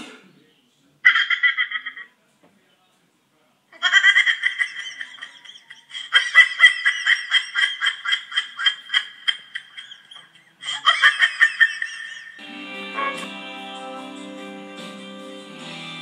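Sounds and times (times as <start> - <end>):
high-pitched giggling laughter: 1.0 - 2.1, 3.8 - 12.4.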